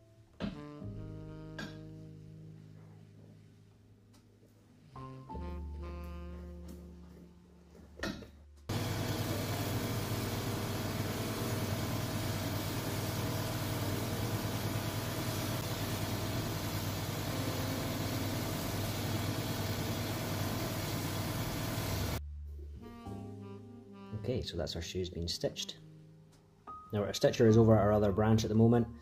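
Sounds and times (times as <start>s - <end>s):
abrasive wheel sanding sole: 8.7s - 22.2s.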